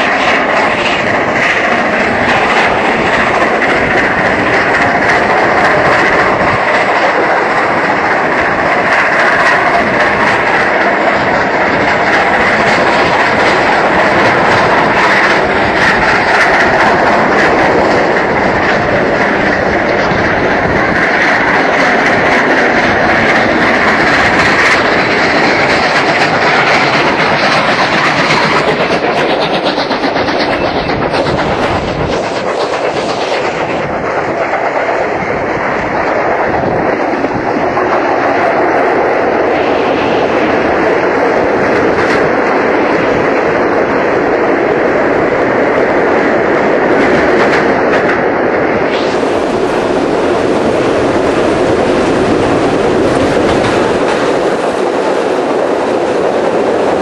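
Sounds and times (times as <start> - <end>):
wheels clicking over rail joints: 0.0 - 39.6
train running noise rush: 0.0 - 57.0.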